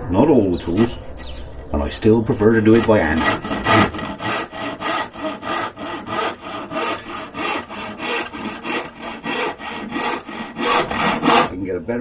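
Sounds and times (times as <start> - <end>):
handsaw cutting wood: 2.6 - 11.6.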